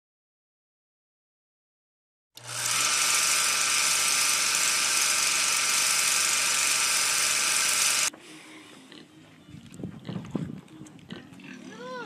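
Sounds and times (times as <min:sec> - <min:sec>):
film projector whirring rattle: 0:02.4 - 0:08.1.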